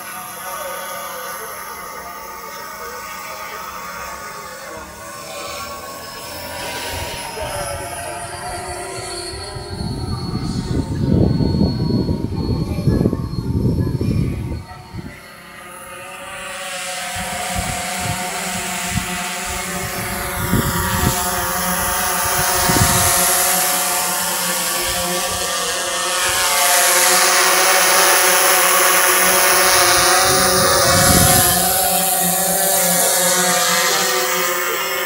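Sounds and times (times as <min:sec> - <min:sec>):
drone motors whining: 0:00.0 - 0:35.0
electric ducted fan jet rushing by: 0:00.0 - 0:35.0
wind buffeting microphone: 0:07.2 - 0:15.2, 0:17.1 - 0:23.5, 0:29.5 - 0:32.1.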